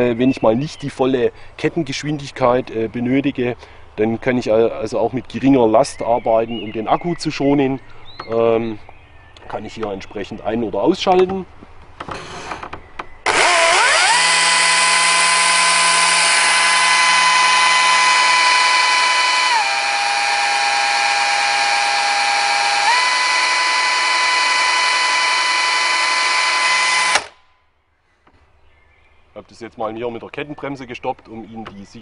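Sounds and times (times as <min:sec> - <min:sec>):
cordless chainsaw whining: 0:13.2 - 0:27.4.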